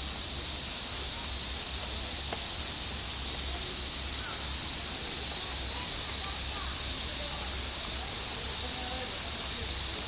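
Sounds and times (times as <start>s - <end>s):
high hiss: 0.0s - 10.0s
faint tick: 2.3s - 2.5s.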